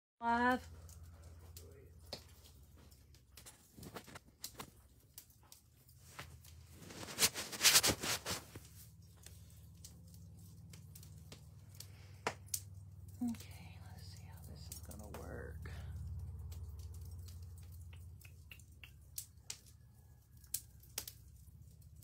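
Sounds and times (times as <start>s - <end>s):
low steady hum: 5.4s - 19.0s
rustling and knocking: 6.0s - 8.8s.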